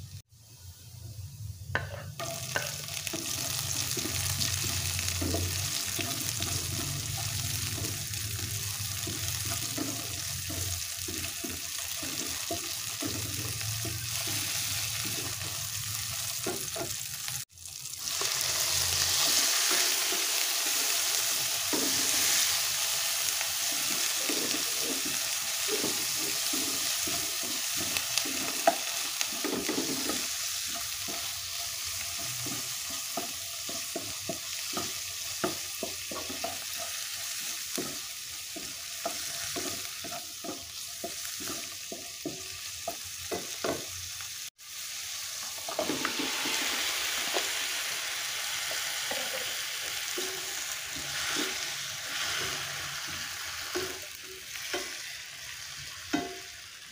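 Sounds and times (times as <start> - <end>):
food sizzling in hot oil: 1.7 - 56.9
spatula scraping and stirring: 23.6 - 43.4.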